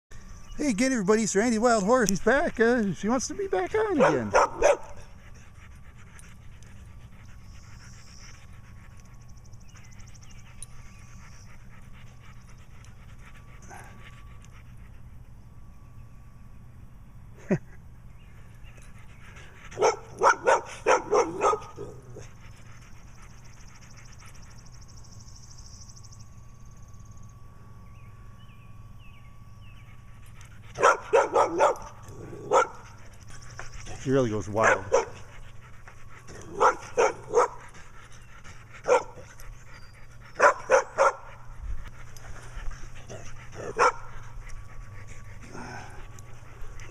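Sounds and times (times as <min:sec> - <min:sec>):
dog barking: 0:03.8 - 0:05.0, 0:19.8 - 0:21.9, 0:30.8 - 0:32.8, 0:34.6 - 0:35.2, 0:36.6 - 0:37.6, 0:38.9 - 0:39.2, 0:40.4 - 0:41.3, 0:43.6 - 0:44.0.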